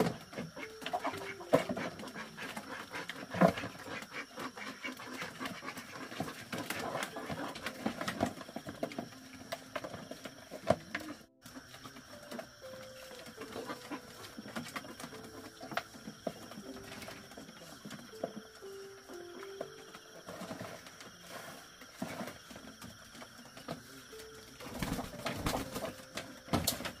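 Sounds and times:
ducks dabbling in mash: 0:00.3 - 0:09.1.

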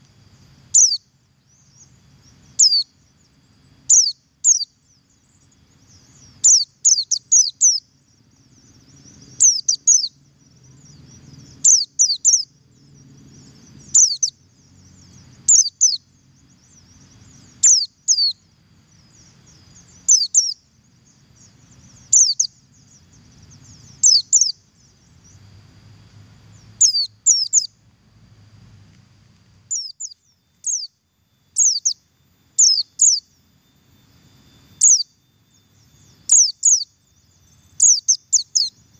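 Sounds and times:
bird high double call: 0:00.7 - 0:01.0, 0:02.5 - 0:02.9, 0:03.9 - 0:04.7, 0:06.4 - 0:07.8, 0:09.4 - 0:10.1, 0:11.6 - 0:12.5, 0:13.8 - 0:14.4, 0:17.5 - 0:18.4, 0:20.0 - 0:20.6, 0:22.0 - 0:24.6, 0:26.8 - 0:27.7, 0:29.7 - 0:31.0, 0:31.6 - 0:32.0, 0:32.6 - 0:33.3, 0:34.8 - 0:35.2, 0:36.0 - 0:37.0, 0:37.7 - 0:38.8.

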